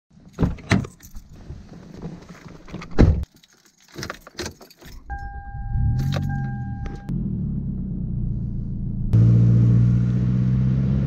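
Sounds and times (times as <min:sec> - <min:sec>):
keys jangling: 0:03.2 - 0:05.3
car engine rumble: 0:04.8 - 0:11.0
electronic warning chime: 0:05.1 - 0:07.1.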